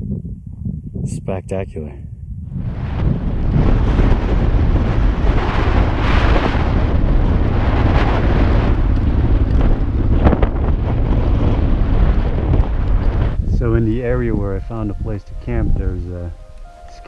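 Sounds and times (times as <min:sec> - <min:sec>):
wind buffeting microphone: 0:00.0 - 0:17.0
motorcycle engine running: 0:02.8 - 0:14.4.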